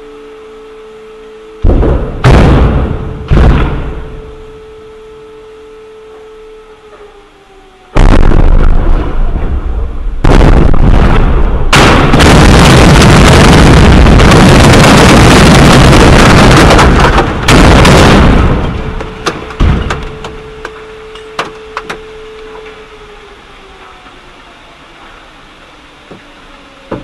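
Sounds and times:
faint steady tone: 0.0 - 2.2, 2.8 - 8.5, 18.4 - 27.0
loud explosions: 1.6 - 4.6, 8.0 - 20.9.

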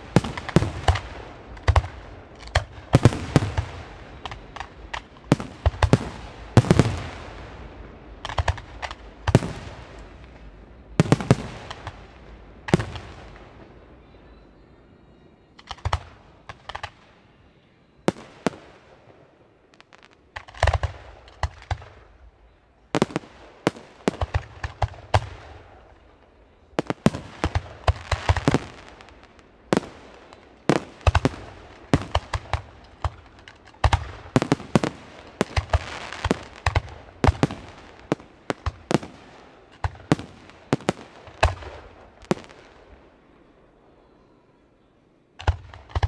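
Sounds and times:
fireworks bursting with sharp bangs: 0.0 - 14.2, 15.6 - 17.3, 18.0 - 44.1, 45.4 - 46.0.

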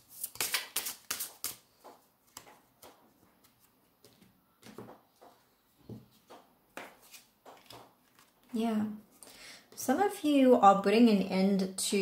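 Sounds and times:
cards being shuffled: 0.1 - 4.8, 6.8 - 8.6.

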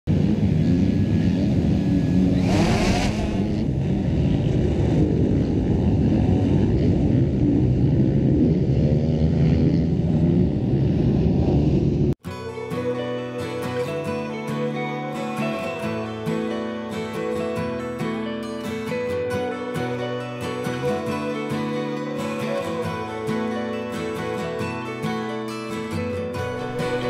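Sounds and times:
drone propellers buzzing: 0.1 - 12.1.

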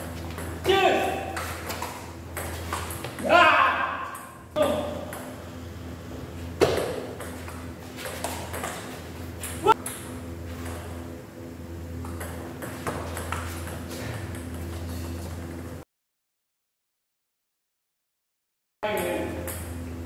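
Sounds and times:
steady hum: 0.0 - 15.8, 18.8 - 20.0.

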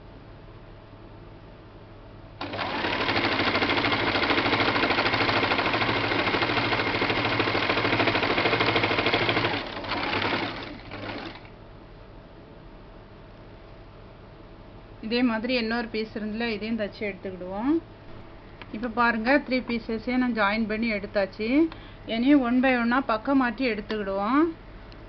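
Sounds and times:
sewing machine stitching: 2.4 - 11.5.

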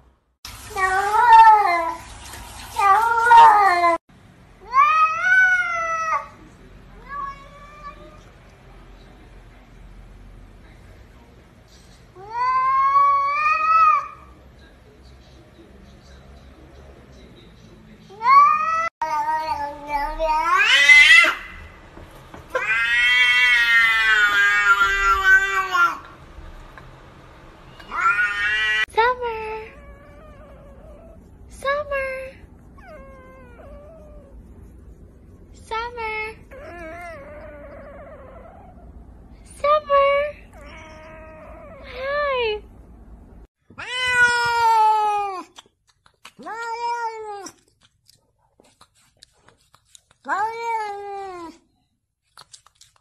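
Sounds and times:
cat meowing: 18.2 - 21.6, 22.5 - 26.1, 27.8 - 28.9, 43.7 - 45.5.

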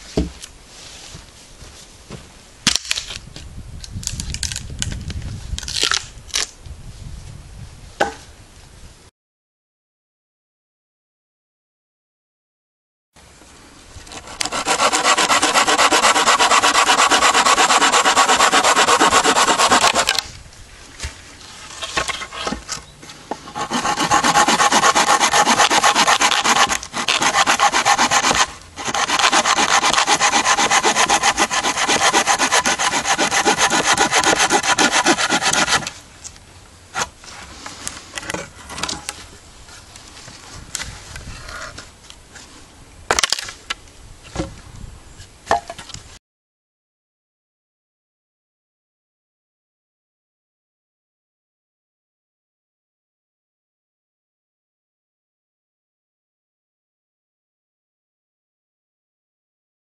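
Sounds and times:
hand saw cutting branch: 14.1 - 20.3, 23.4 - 36.0.

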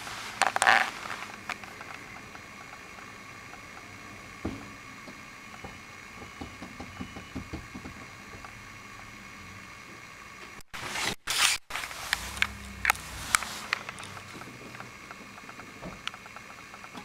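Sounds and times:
low steady hum: 0.0 - 17.0
loud rushing scrape: 10.8 - 14.4.

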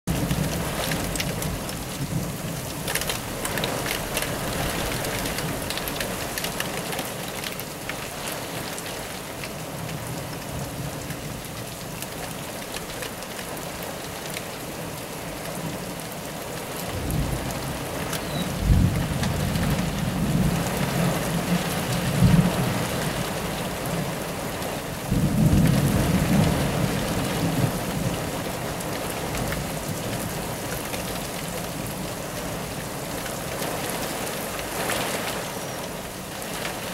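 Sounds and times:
thunder rumbling: 0.1 - 6.7, 16.8 - 24.0, 25.1 - 30.5
rain beating on a window: 0.1 - 36.9.

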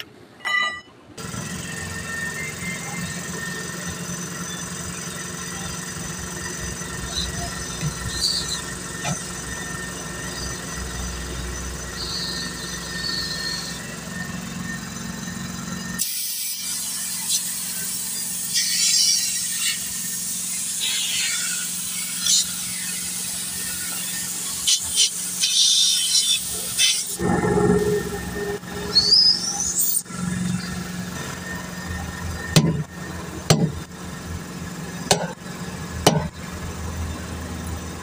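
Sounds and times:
mechanical hum: 0.0 - 38.0
air hissing at tyre: 15.9 - 27.6.

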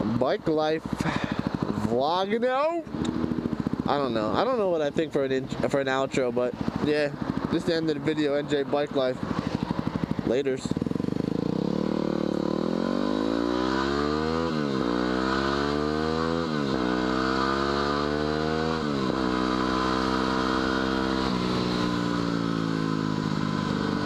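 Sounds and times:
motorcycle engine accelerating: 0.0 - 24.0.

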